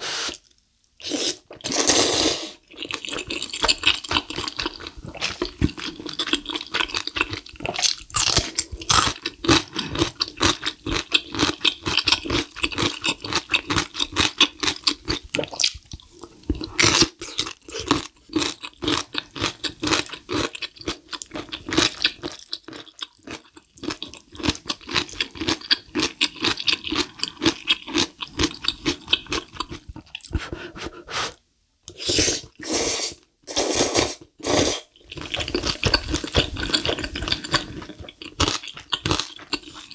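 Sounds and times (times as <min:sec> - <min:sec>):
slurping noodles: 0:00.0 - 0:03.4, 0:30.2 - 0:38.0
wet chewing with crunches: 0:02.7 - 0:30.6, 0:35.0 - 0:39.9.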